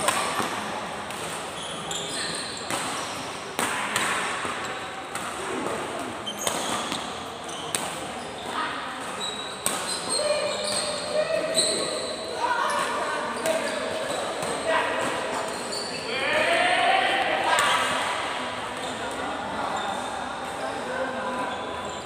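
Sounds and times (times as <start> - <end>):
sneakers squeaking on court: 1.5 - 3.4, 6.2 - 16.1
racket hitting shuttlecock: 3.6 - 8.2, 9.0 - 10.1.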